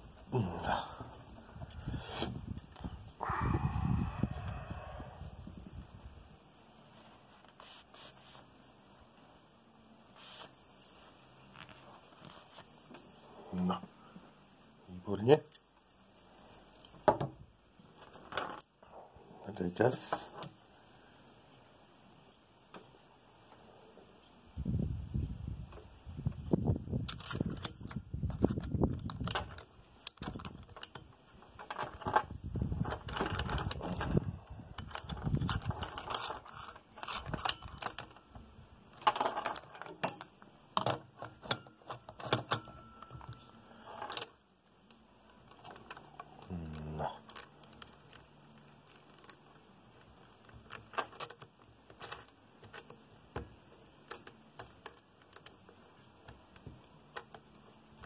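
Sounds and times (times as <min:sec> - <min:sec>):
chainsaw chain rattling: 0:27.0 - 0:44.4.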